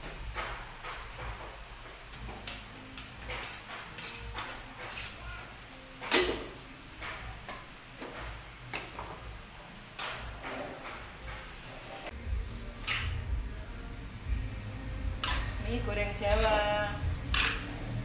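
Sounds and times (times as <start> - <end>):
spatula scraping and knocking in wok: 0.0 - 5.2, 12.7 - 13.5, 15.0 - 18.0.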